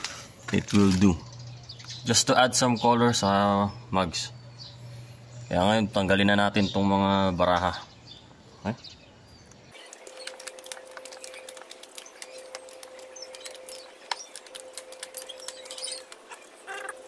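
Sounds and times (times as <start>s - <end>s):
cards crackling and scraping: 0.0s - 1.1s, 9.8s - 17.0s
faint steady hum: 0.0s - 6.8s.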